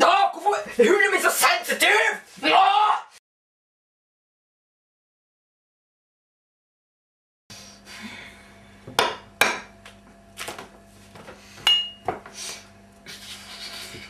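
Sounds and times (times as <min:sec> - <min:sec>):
steady low hum: 0:07.5 - 0:14.0
tableware clink with a ring: 0:11.7 - 0:12.1.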